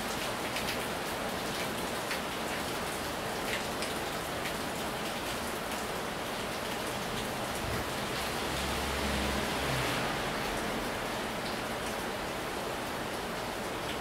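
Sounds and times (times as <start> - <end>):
heavy rain on tiles: 0.0 - 14.0.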